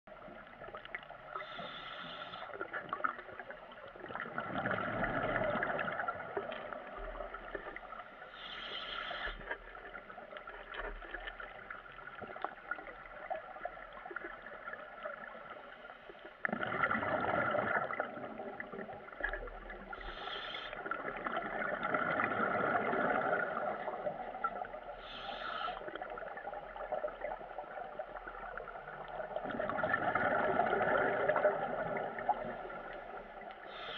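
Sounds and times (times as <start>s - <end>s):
exhaled bubbles gurgling: 0.1s - 15.8s, 16.4s - 33.9s
regulator inhalation hiss: 1.4s - 2.5s, 8.4s - 9.4s, 20.0s - 20.8s, 25.0s - 25.8s, 33.7s - 33.9s.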